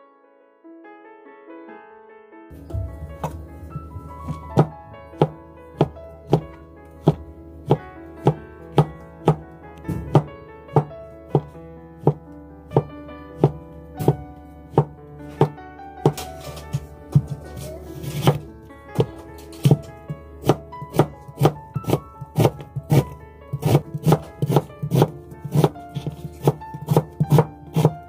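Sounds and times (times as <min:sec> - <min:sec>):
background music: 0:02.5 - 0:28.0
knife knocking on cutting board: 0:02.6 - 0:12.2, 0:12.8 - 0:18.4.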